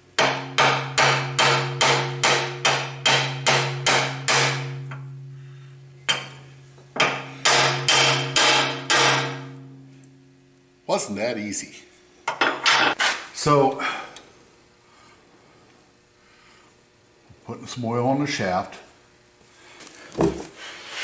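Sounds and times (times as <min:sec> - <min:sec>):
hammer tapping metal plate: 0:00.2 - 0:05.3, 0:06.0 - 0:10.1.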